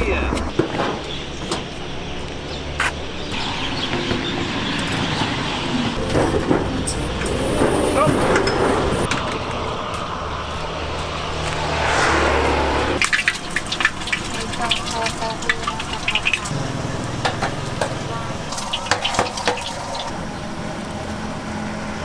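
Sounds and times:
people talking: 0.0s - 0.5s, 6.9s - 8.4s, 14.2s - 18.9s
car traffic passing: 0.0s - 22.0s.

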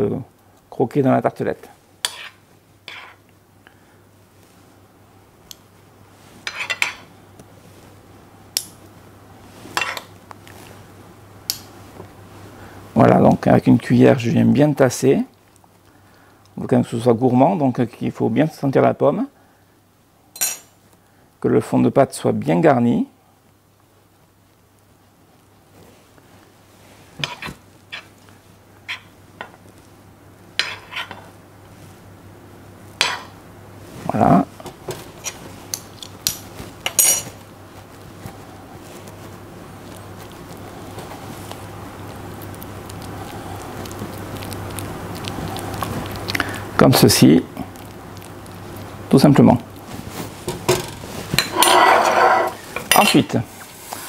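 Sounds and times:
metal spoon clinking on pans: 20.4s - 20.7s.

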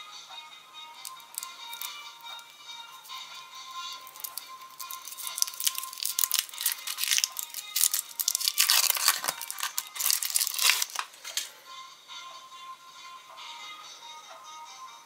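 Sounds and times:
foil wrapper crinkling and tearing: 1.0s - 2.5s, 4.0s - 11.5s.

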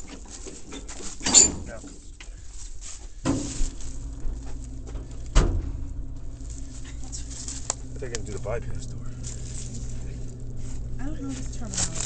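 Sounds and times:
steady low hum: 0.0s - 12.0s
heavy metal door clunks: 1.2s - 1.8s, 4.8s - 6.2s.

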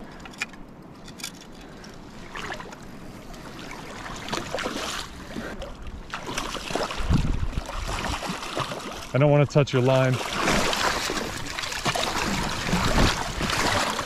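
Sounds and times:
fish splashing in water: 3.6s - 9.1s, 10.1s - 14.0s.

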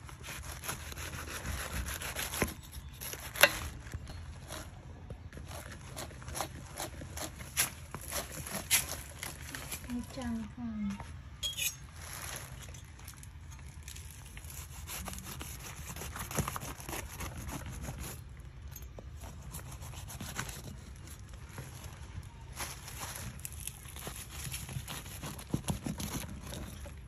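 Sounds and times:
knife sawing through fruit rind: 0.0s - 3.6s, 5.4s - 9.3s, 14.4s - 18.2s, 19.2s - 21.0s, 24.0s - 27.0s.

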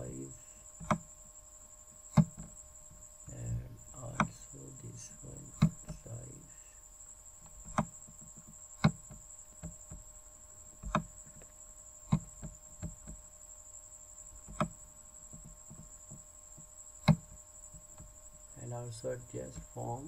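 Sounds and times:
computer mouse clicking: 0.8s - 1.0s, 4.1s - 4.4s, 5.5s - 6.0s, 7.6s - 10.0s, 10.8s - 11.5s.

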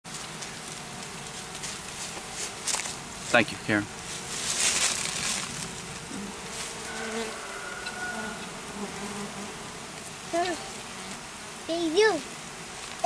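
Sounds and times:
rustling noise: 0.1s - 7.0s
honeybees buzzing: 0.1s - 13.0s.

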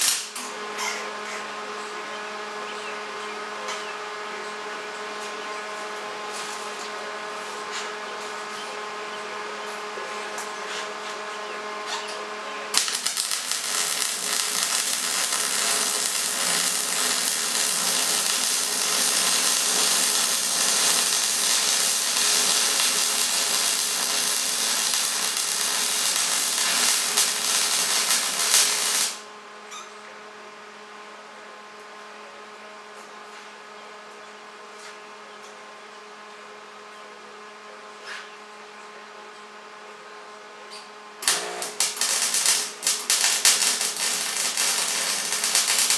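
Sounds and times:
welder arc crackling: 0.0s - 0.4s, 12.8s - 29.2s, 41.2s - 45.9s
steady hum: 11.4s - 29.6s, 41.2s - 45.9s.

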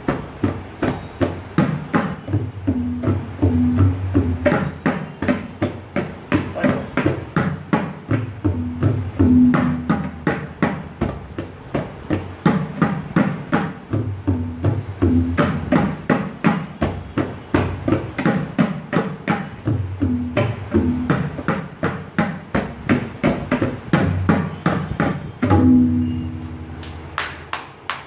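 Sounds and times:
tabla drumming: 0.0s - 27.9s
hand claps: 26.7s - 28.0s.

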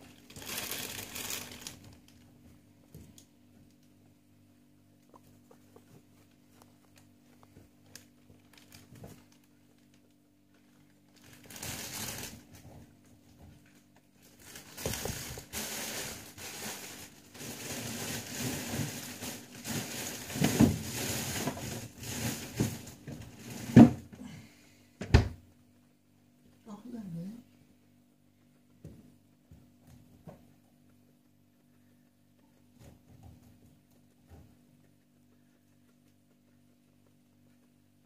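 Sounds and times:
guinea pig rustling in hay: 0.0s - 23.8s.

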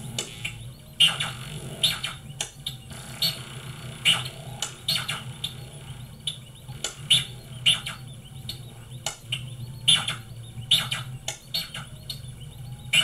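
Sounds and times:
low synthesizer drone: 0.0s - 13.0s
synthesizer chirps and blips: 0.0s - 13.0s.

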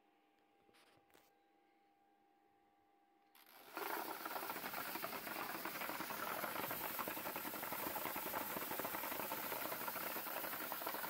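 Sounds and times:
rotary tumbler rattling: 3.4s - 11.0s.

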